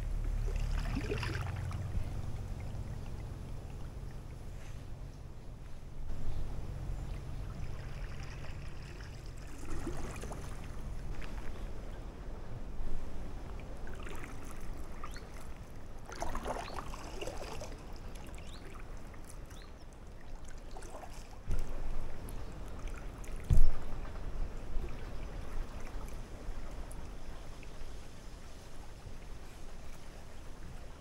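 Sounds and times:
paddle splashing water: 0.0s - 5.0s, 6.5s - 31.0s
steady low rumble: 0.0s - 16.1s.

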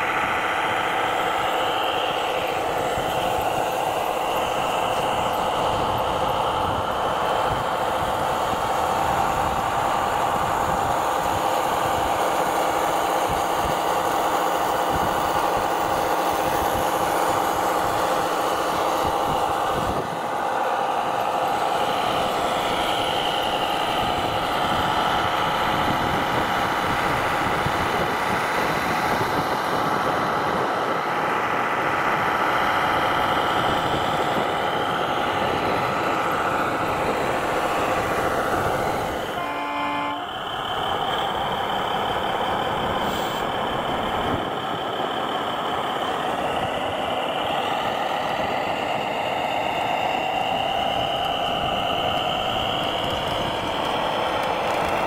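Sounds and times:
model truck engine drone: 0.0s - 55.0s
short horn toot: 39.4s - 40.3s.

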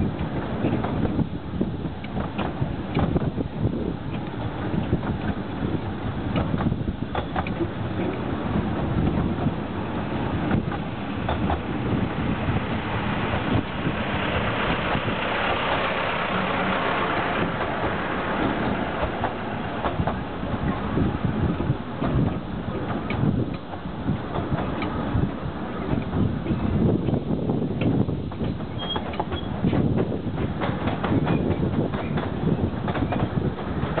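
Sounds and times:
diesel locomotive engine rumble: 0.0s - 34.0s
carriages rolling by: 4.3s - 27.3s.

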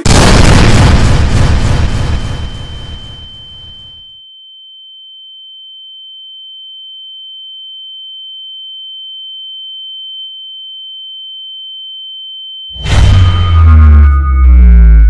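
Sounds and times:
high-pitched ringing tone: 3.0s - 15.0s.

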